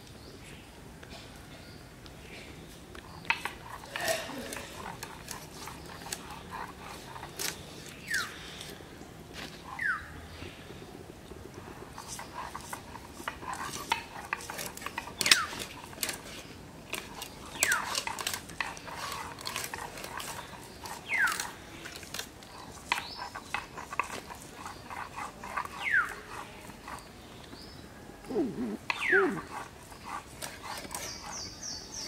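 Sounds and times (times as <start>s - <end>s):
short high falling calls: 28.3s - 29.5s.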